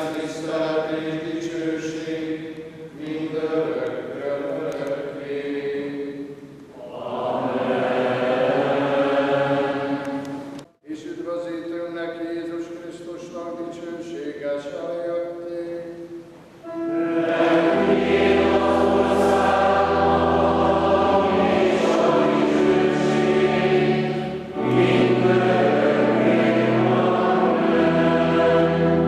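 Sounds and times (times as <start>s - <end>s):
choir singing held chords: 0.0s - 10.6s, 16.6s - 29.0s
steady low note: 16.6s - 29.0s.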